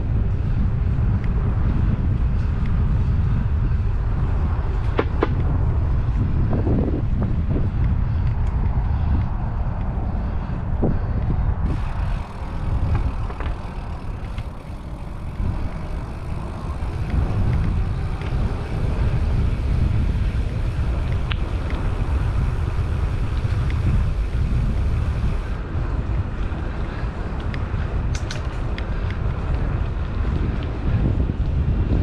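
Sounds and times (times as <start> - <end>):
bike tyres rolling: 0.0 - 32.0
wind buffeting microphone: 0.0 - 32.0
faint clicks: 27.4 - 29.7.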